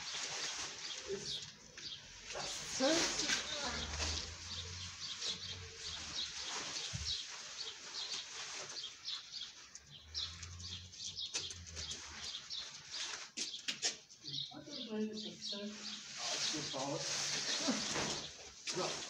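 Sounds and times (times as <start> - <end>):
small birds chirping: 0.0 - 19.0
screen tent rustling and knocking: 2.5 - 9.1.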